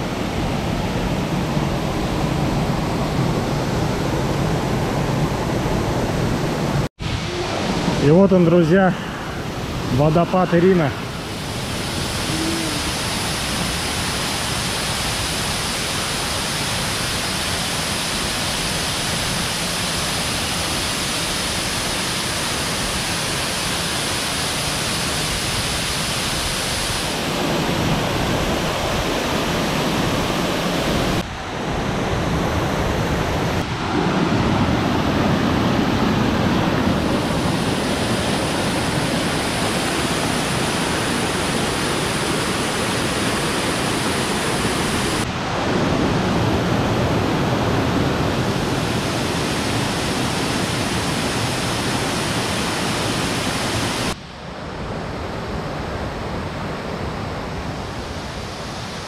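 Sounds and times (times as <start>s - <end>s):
waterfall rushing: 0.0s - 31.3s, 32.3s - 54.3s.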